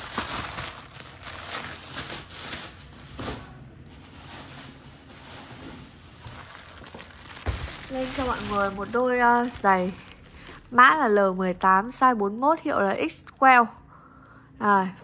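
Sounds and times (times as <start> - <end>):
packing material rustling: 0.0 - 10.9.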